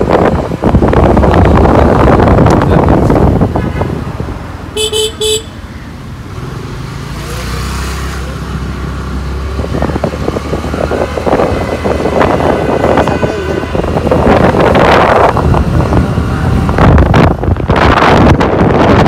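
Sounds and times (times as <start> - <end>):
wind noise on microphone: 0.0 - 5.5, 8.4 - 19.0
traffic engine drone: 0.0 - 19.0
car horn tooting: 4.8 - 5.6.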